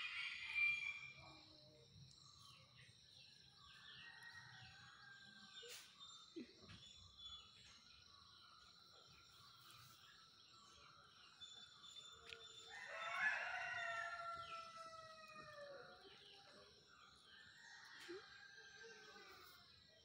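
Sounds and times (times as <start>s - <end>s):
rooster crowing: 0.0s - 1.2s, 12.7s - 15.8s.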